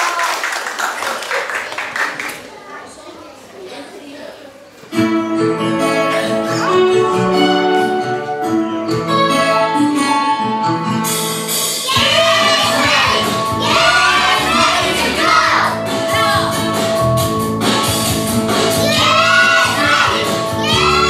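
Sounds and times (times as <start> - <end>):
instrumental music with held notes: 4.9 - 21.0.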